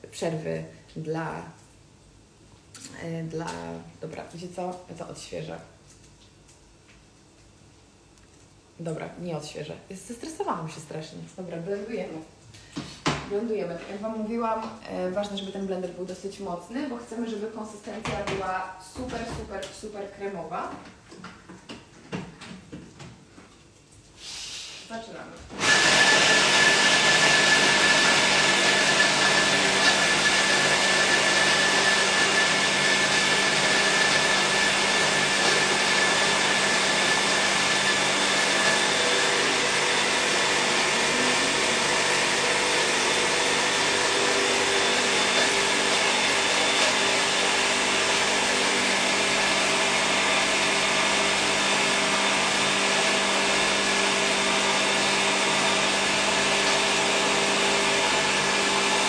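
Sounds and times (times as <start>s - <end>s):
blender grinding: 25.5s - 59.0s.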